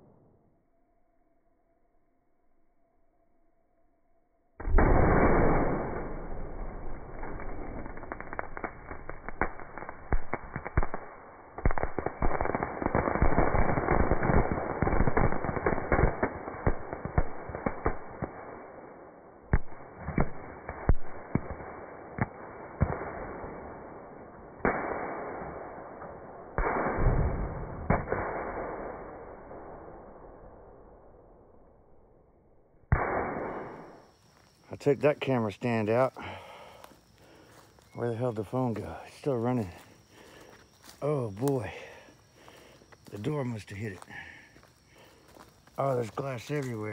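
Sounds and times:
sharp bangs: 4.6s - 8.3s, 32.9s - 34.2s
fireworks crackling and popping: 4.6s - 29.8s, 32.9s - 46.9s.

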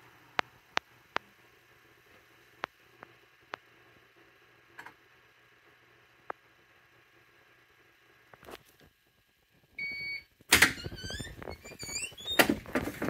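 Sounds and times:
rising squeaks: 10.8s - 12.7s.

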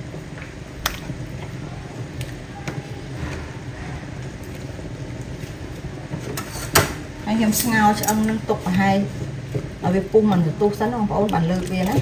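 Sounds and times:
steady low rumble: 0.0s - 6.4s.

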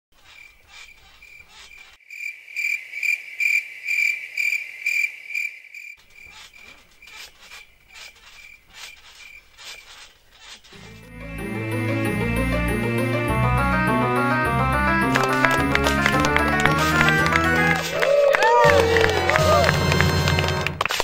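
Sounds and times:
crickets chirping: 0.2s - 10.1s.

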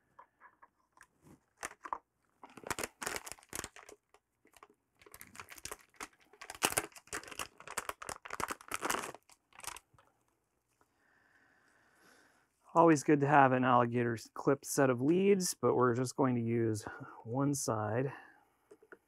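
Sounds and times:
plastic packaging crinkling: 0.9s - 10.0s.

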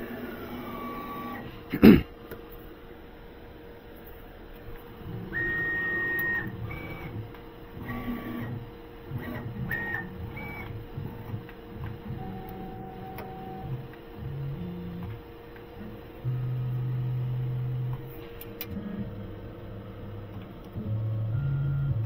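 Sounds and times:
steady machine hum: 0.0s - 22.0s
axis motors whining: 5.0s - 22.0s.

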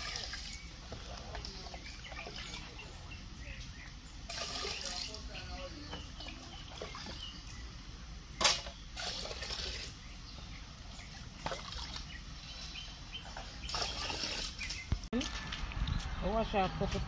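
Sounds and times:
water sloshing over a plate: 0.0s - 2.8s, 4.3s - 7.5s, 11.0s - 12.3s
water splashing: 0.0s - 2.8s, 4.2s - 5.6s, 11.1s - 12.2s, 13.6s - 15.1s.

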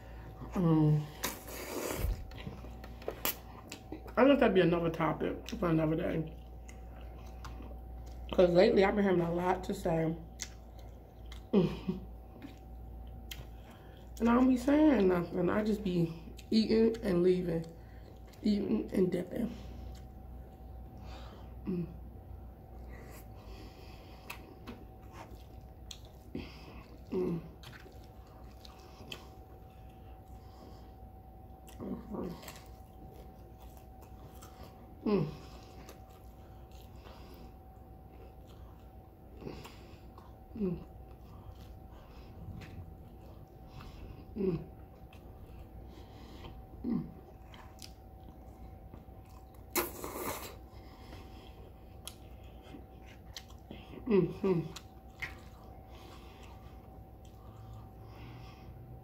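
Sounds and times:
wet chewing and mouth clicks: 10.3s - 11.6s, 12.3s - 14.4s, 24.2s - 30.7s, 31.4s - 54.0s, 54.6s - 58.0s.

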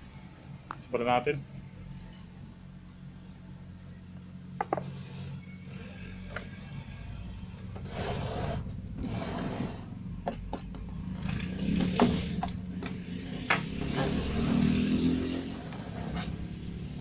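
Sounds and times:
steady low hum: 0.0s - 14.4s
television scraping on wooden bench: 7.8s - 9.9s, 15.4s - 16.4s.

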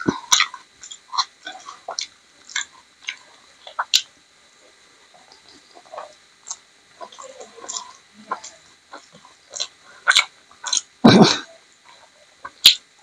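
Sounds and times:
chewing and lip smacking: 0.0s - 4.1s, 5.2s - 11.0s.

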